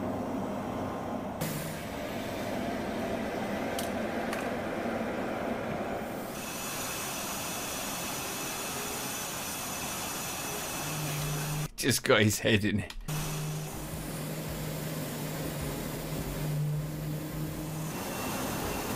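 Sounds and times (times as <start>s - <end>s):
faint high whine: 5.2s - 11.8s, 13.0s - 18.9s
jet engine rushing: 13.1s - 18.9s.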